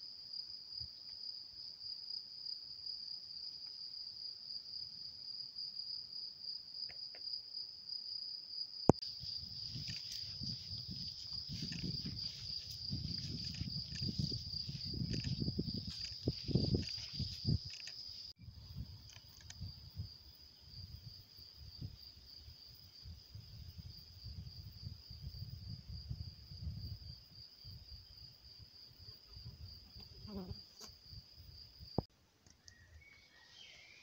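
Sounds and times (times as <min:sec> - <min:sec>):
insects chirring: 0:00.3 - 0:34.0
gusty low rumble and rustle: 0:09.2 - 0:17.9, 0:18.5 - 0:28.0.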